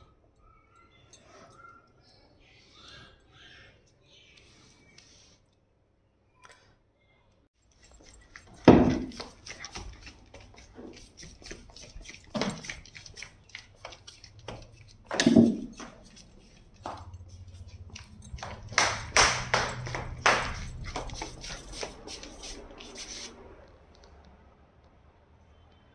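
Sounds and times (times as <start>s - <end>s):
dog claws clicking on tile: 7.7s - 23.3s.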